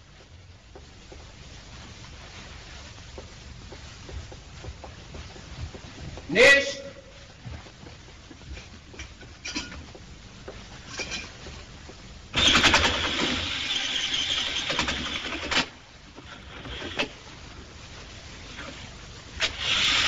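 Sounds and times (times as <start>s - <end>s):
drill boring into wood: 12.4s - 15.6s, 19.4s - 20.0s.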